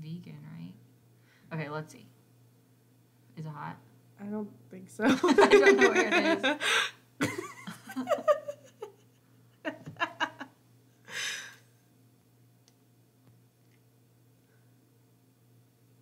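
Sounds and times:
woman laughing: 0:05.1 - 0:11.4
breathy exhale: 0:11.1 - 0:11.6.

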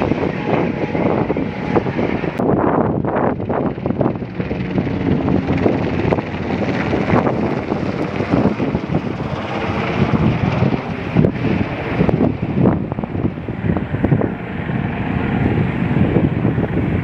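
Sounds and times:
helicopter flying overhead: 0:00.0 - 0:17.0
wind buffeting microphone: 0:00.0 - 0:17.0.

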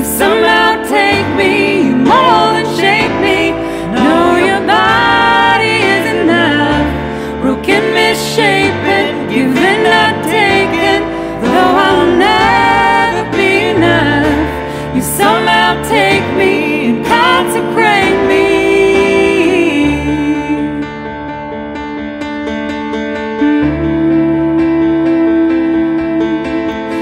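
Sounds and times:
woman and man singing: 0:00.0 - 0:20.8
digital piano chords: 0:00.0 - 0:27.0.

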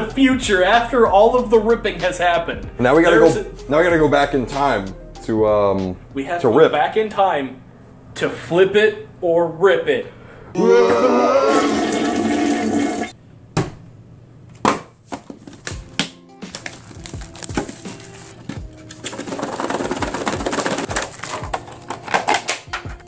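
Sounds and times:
music: 0:00.0 - 0:07.2, 0:15.5 - 0:23.0
plastic wrap rustling: 0:16.4 - 0:22.7.

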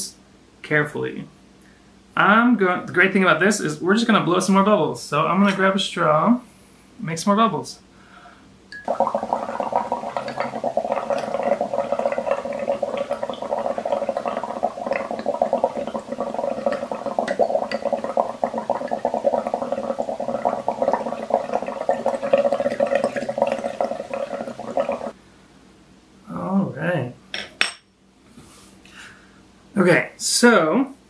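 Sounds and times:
bubbling and gurgling water: 0:08.8 - 0:25.2.

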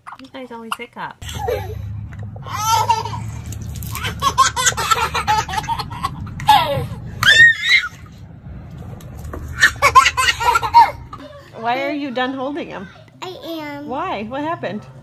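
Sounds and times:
baby laughing: 0:02.4 - 0:07.3, 0:09.6 - 0:11.3
baby squealing: 0:06.5 - 0:08.0.

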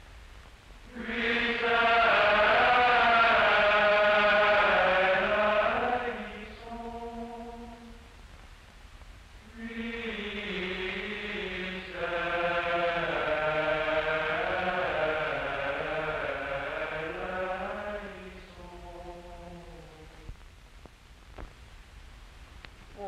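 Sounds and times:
male choir chanting: 0:00.9 - 0:08.0, 0:09.4 - 0:20.2.

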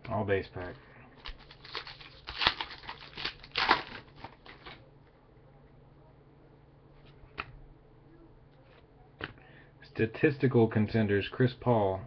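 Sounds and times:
wrapper crinkling and tearing: 0:01.2 - 0:04.8.

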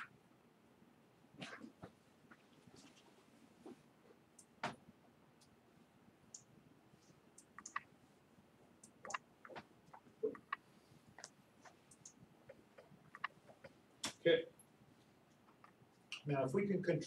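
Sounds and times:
faint clicks and taps: 0:01.5 - 0:04.8, 0:06.3 - 0:07.9, 0:08.8 - 0:16.3.

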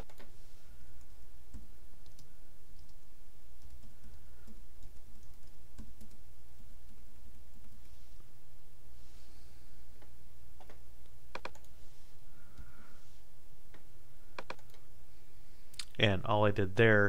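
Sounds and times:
keyboard typing: 0:00.0 - 0:00.3, 0:01.0 - 0:08.0, 0:10.6 - 0:11.8, 0:13.7 - 0:14.8
steady low hum: 0:00.0 - 0:17.0.

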